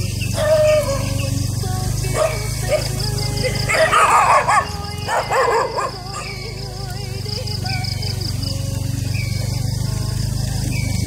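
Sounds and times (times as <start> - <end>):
motorbike engine running: 0.0 - 11.0
dog barking: 0.3 - 1.2, 2.1 - 6.5.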